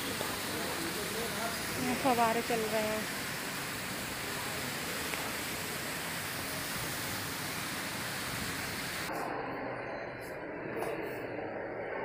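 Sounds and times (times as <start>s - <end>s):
fountain water splashing: 0.0s - 9.1s.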